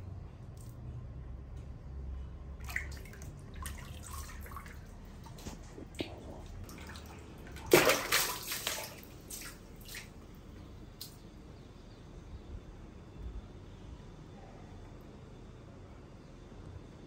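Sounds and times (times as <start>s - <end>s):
water splashing and sloshing: 2.5s - 11.2s
water drips: 2.6s - 11.3s.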